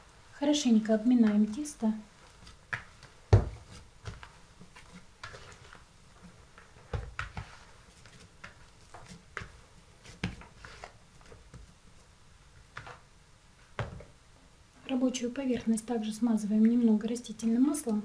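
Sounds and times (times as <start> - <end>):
dough squelching and thumping: 0.8 - 14.2.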